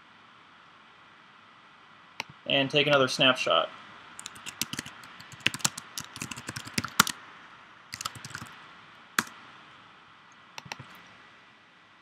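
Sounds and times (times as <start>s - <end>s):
keyboard key clicks: 4.2s - 7.2s, 8.0s - 8.5s, 10.6s - 11.0s.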